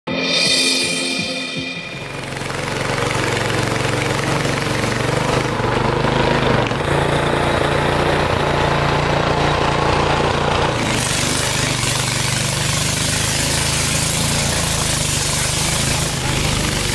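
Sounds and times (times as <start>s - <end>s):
small boat engine running: 2.0s - 16.9s.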